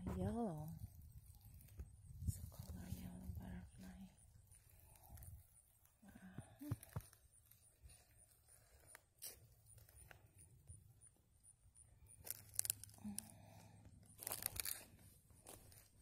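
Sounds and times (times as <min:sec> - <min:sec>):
rustling and crunching of dry leaves: 0:00.3 - 0:05.2, 0:12.2 - 0:16.0.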